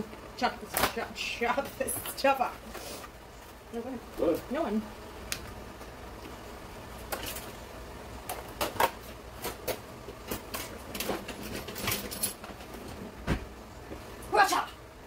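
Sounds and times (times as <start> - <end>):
utensils rattling in drawer: 10.3 - 12.4.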